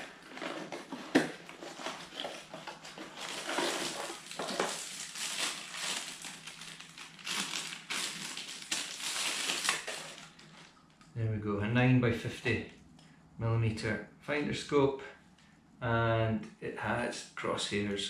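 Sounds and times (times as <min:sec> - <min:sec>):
cardboard and plastic rustling: 0:00.0 - 0:10.8.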